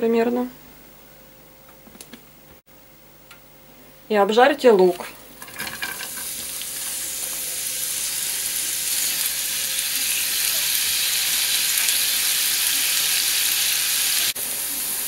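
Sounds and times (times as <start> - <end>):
onions sizzling in a frying pan: 5.3 - 15.0.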